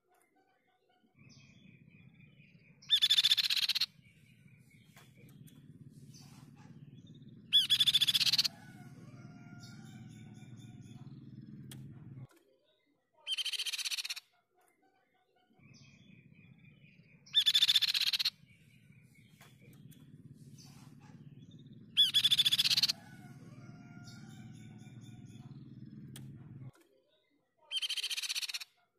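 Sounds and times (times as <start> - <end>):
faint bird calls: 1.2 - 12.3, 15.6 - 26.7, 27.7 - 28.7
low hum: 1.3 - 12.3, 15.7 - 26.7
bird harsh chattering: 2.8 - 8.9, 13.3 - 14.2, 17.3 - 18.4, 19.3 - 25.5, 27.7 - 28.6.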